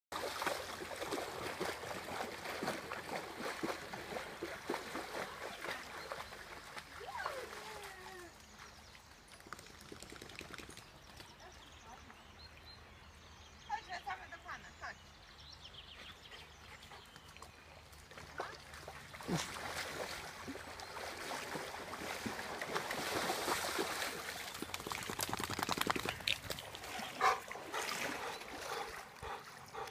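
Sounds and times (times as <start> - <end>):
running splashes in shallow water: 0.1 - 11.2, 17.4 - 29.9.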